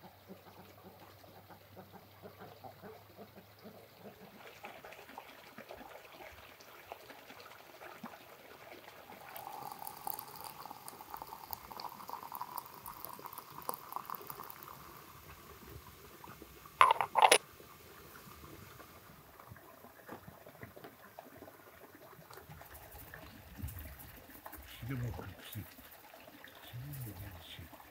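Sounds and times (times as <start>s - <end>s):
water pouring into teapot: 7.4s - 18.4s, 22.1s - 27.9s
porcelain lid clinks: 16.8s - 17.4s.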